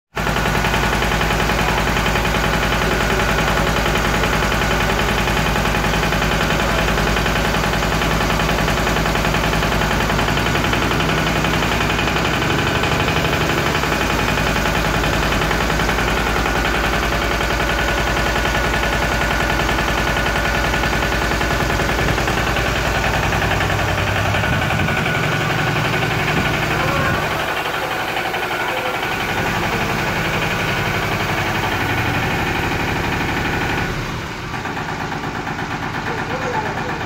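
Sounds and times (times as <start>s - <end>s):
sprayer pump knocking: 0.1s - 37.0s
tractor engine running: 0.1s - 37.0s.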